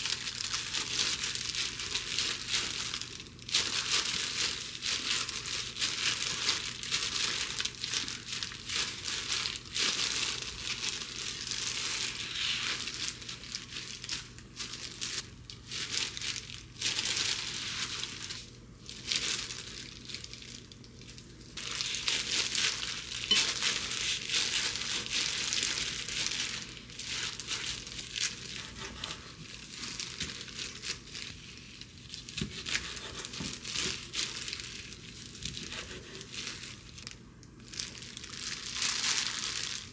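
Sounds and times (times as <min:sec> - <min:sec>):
plastic gloves crinkling: 0:00.0 - 0:39.9
knife cutting through rolls: 0:32.3 - 0:34.4, 0:35.5 - 0:36.6.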